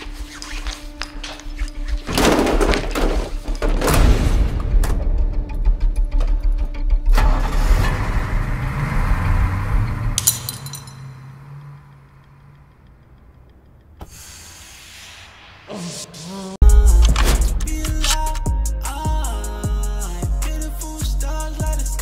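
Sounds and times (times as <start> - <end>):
bus engine pulling away: 7.1 - 14.6
loud music with heavy beat: 16.6 - 22.0.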